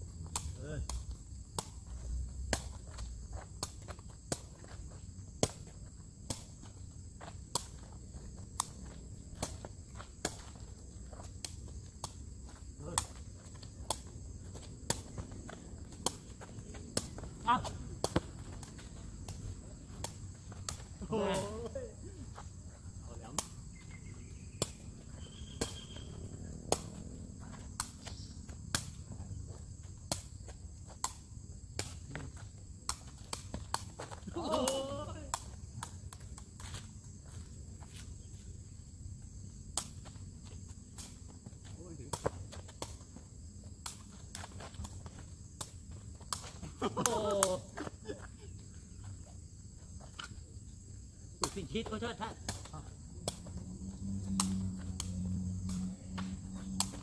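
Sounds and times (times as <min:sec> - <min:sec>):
high insect buzz: 0:00.0 - 0:57.0
foot kicking woven ball: 0:00.3 - 0:22.5
ball being kicked: 0:14.8 - 0:21.8.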